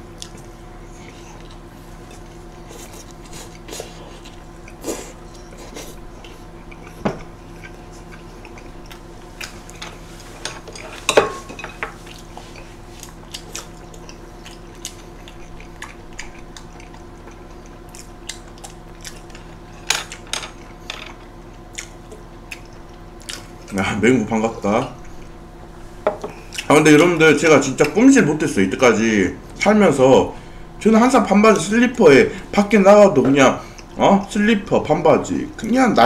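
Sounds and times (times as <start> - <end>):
chewing and biting: 0.0 - 9.8, 12.0 - 23.8
faint steady hum: 0.0 - 36.0
plates and chopsticks clinking: 9.8 - 12.0.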